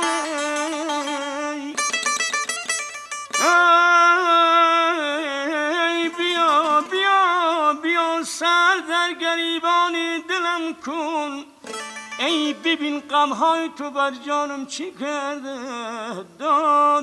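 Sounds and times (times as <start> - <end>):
long-necked lute plucked: 0.0 - 4.2, 11.6 - 12.9.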